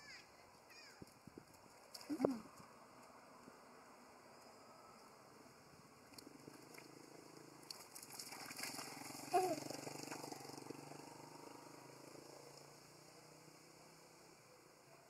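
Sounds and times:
water splashing: 6.0s - 10.3s.

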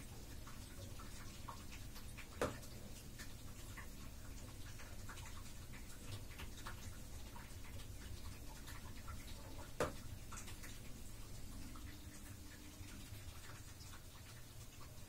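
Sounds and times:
water plop: 1.0s - 4.0s, 8.2s - 10.8s.

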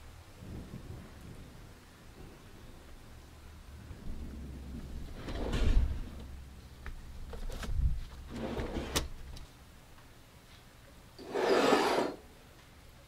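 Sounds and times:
noisy scrape: 11.2s - 12.2s.

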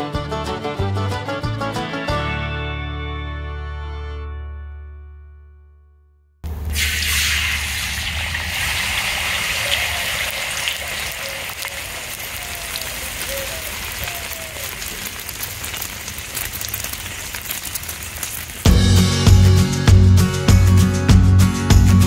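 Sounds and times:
egg sizzling in oil: 6.5s - 14.0s.

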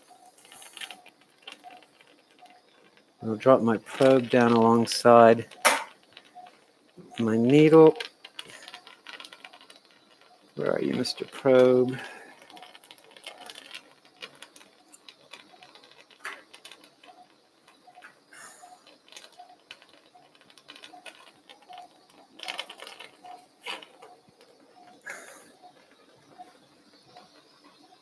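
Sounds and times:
faint monitor beep: 0.0s - 1.8s, 2.4s - 8.8s, 17.0s - 20.2s.

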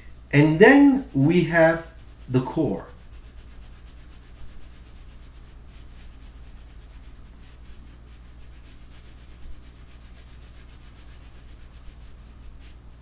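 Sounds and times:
low steady hum: 0.0s - 13.0s
pencil scratching on paper: 0.7s - 12.9s.

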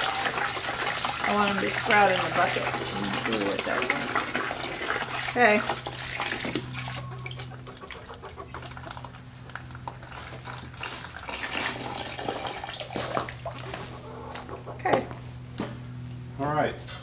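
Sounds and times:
hose water pouring into bucket: 0.0s - 7.4s, 10.0s - 13.6s
steady low hum: 0.0s - 17.0s.

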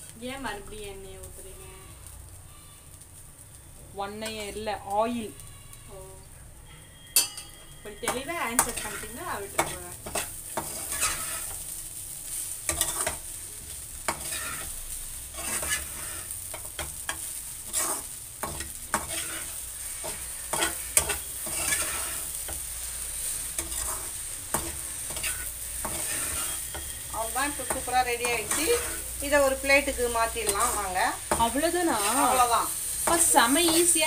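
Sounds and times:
oil sizzling: 0.0s - 34.0s
metal spatula scraping pan: 7.2s - 11.7s, 12.3s - 13.2s, 14.1s - 34.0s.

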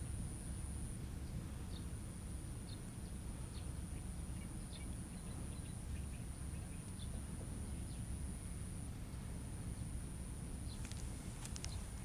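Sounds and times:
faint bird chirps: 0.5s - 2.0s, 2.6s - 8.2s, 10.6s - 11.0s, 11.6s - 12.0s.

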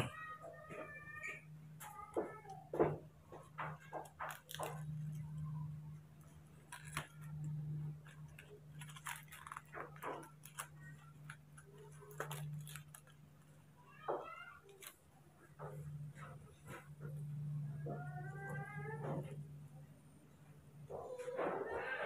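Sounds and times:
foil packet crinkling: 2.9s - 15.0s.

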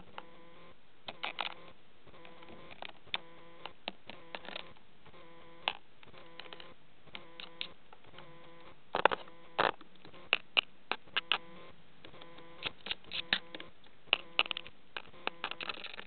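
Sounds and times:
faint steady hum: 0.0s - 16.0s
budgerigar pecking and scrabbling: 5.6s - 16.0s.

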